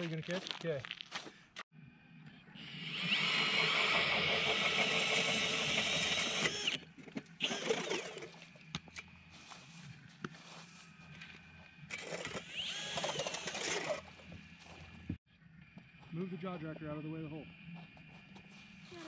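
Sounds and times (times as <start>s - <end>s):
cordless drill spinning auger: 2.6s - 9.1s, 11.3s - 15.0s.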